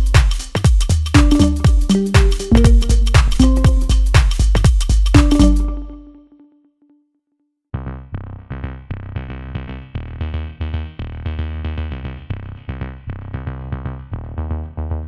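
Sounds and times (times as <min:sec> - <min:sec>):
synthesizer music with beat: 0:00.0 - 0:06.4
held tone: 0:01.2 - 0:04.4, 0:05.2 - 0:06.4.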